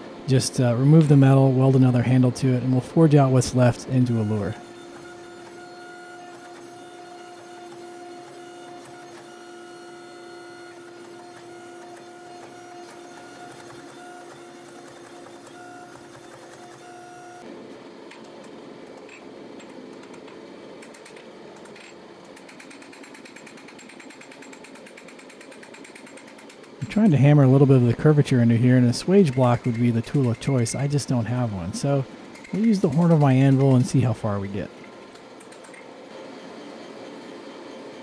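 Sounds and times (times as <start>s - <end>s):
hydraulic press humming: 0.0s - 17.5s, 18.1s - 38.0s
rough mechanical noise: 20.0s - 37.4s.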